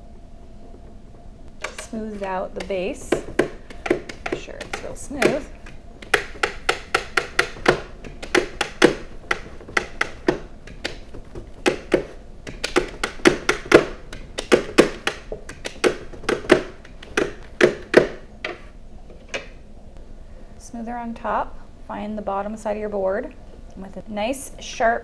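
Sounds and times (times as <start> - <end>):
plastic smoothers tapping on cake: 1.6 - 18.6.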